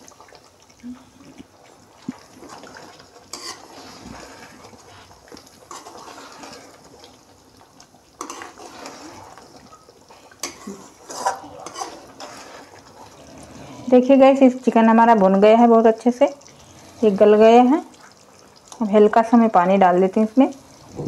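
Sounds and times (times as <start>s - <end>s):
spoon scraping metal pan: 3.3s - 4.5s, 5.7s - 6.7s, 8.2s - 9.3s, 10.4s - 12.7s.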